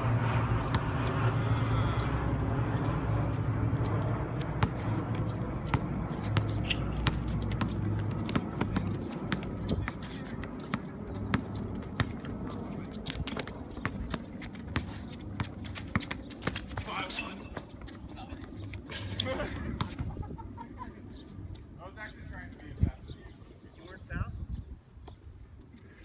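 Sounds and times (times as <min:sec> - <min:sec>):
basketball bouncing on hard court: 0:00.6 - 0:01.4, 0:04.4 - 0:12.3, 0:13.0 - 0:16.9.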